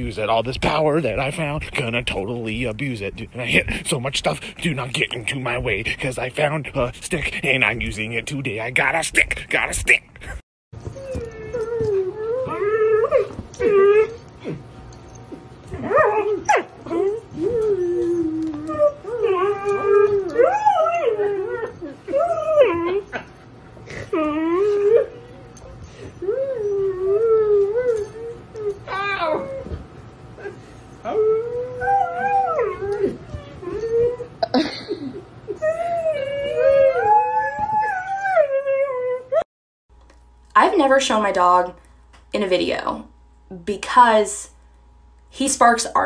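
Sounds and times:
dog howling: 11.0 - 14.6, 15.7 - 23.3, 23.9 - 29.8, 30.4 - 34.4, 35.5 - 39.5.

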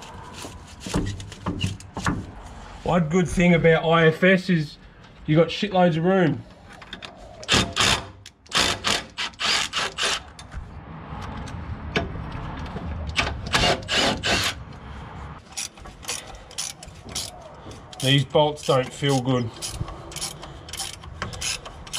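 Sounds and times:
ratchet wrench rasping: 15.4 - 21.9.

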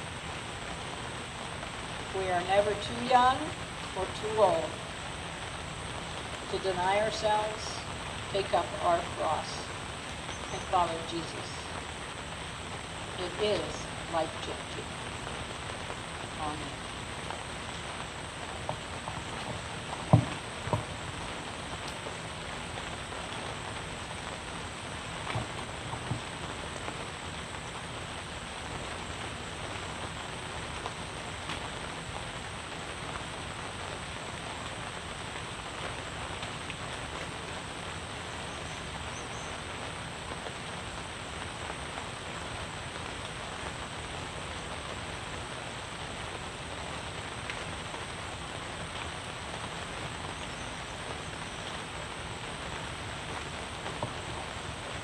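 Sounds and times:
steady rain hiss: 0.0 - 55.0
faint knocks: 20.1 - 20.9.

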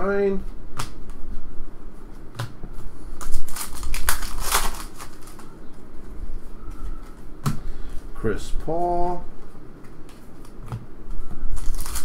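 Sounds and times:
cards being handled: 2.4 - 5.5, 9.8 - 12.0
foil wrapper crinkling and tearing: 3.2 - 5.5, 11.5 - 12.0.

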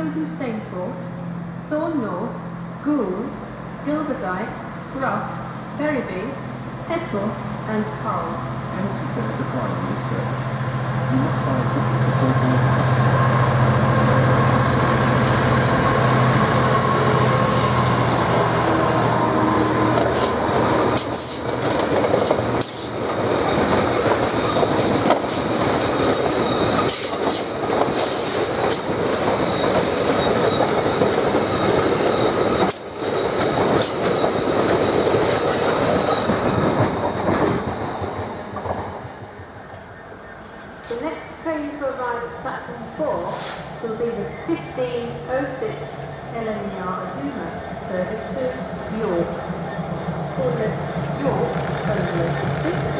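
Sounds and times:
diesel locomotive engine drone: 0.0 - 52.9
wagons clacking over rail joints: 16.8 - 39.3, 48.2 - 52.9
wheel squeal: 25.3 - 27.4, 28.2 - 38.0.

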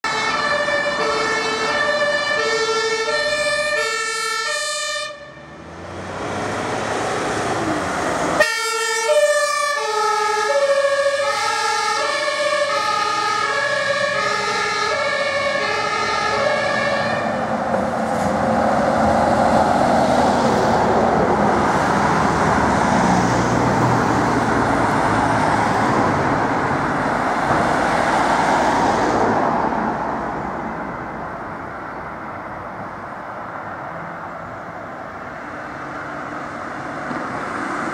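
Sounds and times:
ambulance two-tone horn: 0.0 - 5.5, 8.4 - 17.4
road traffic noise: 0.0 - 37.9.

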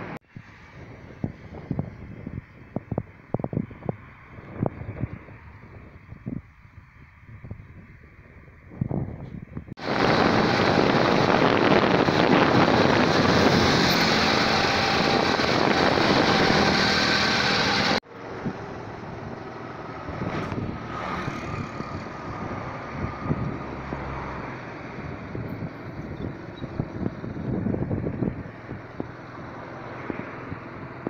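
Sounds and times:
road traffic: 0.0 - 31.0
wind on microphone: 0.0 - 31.0
vehicle passing: 9.8 - 31.0.

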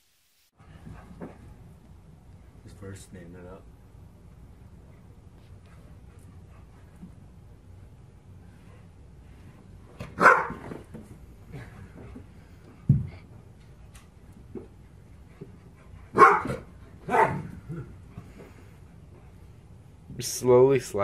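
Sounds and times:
dog barking: 10.2 - 10.6, 16.1 - 17.5.

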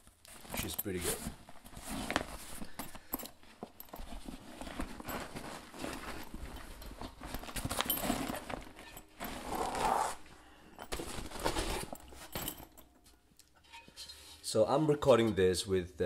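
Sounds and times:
fabric rustling: 0.0 - 13.2
zipper rasping open: 3.8 - 10.3.

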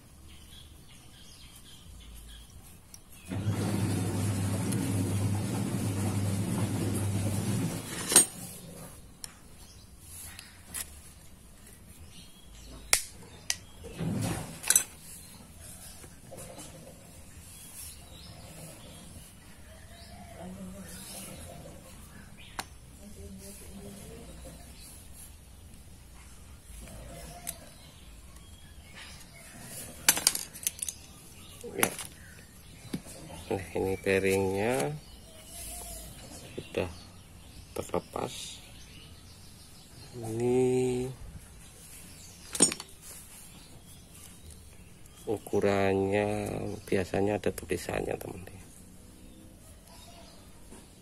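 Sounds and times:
metal tools clinking: 7.9 - 8.5, 14.6 - 15.0, 30.0 - 31.2, 42.4 - 43.0.

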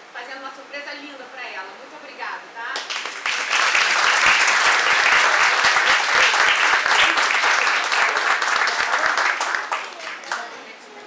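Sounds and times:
audience applauding: 2.9 - 10.5.

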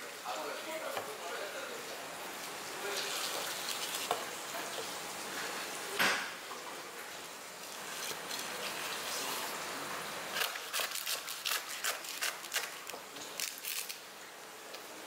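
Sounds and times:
faint steady hiss: 0.0 - 11.5
knife slicing raw fish: 10.3 - 13.9.

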